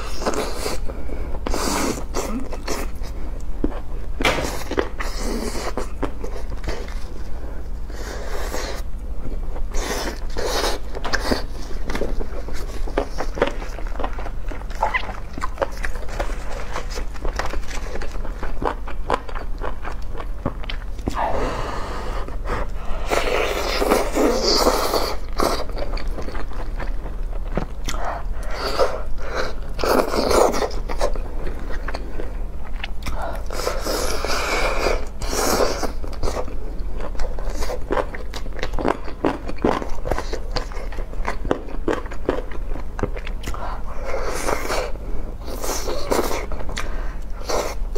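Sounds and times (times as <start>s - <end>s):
low hum: 3.1s - 33.7s
chewing and lip smacking: 10.1s - 21.2s.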